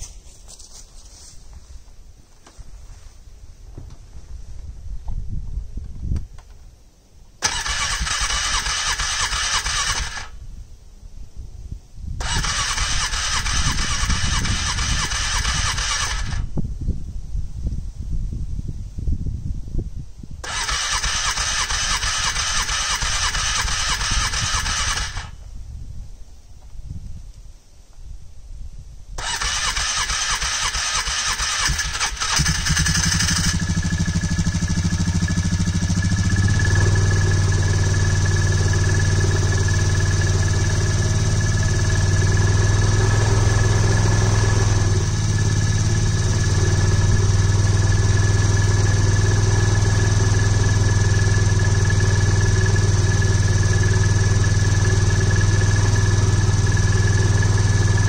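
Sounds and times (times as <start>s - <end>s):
engine cranking: 7.4s - 10.3s, 12.2s - 16.4s, 20.4s - 25.4s, 29.2s - 43.8s
engine idling: 12.2s - 16.4s, 20.4s - 25.4s, 29.2s - 58.0s.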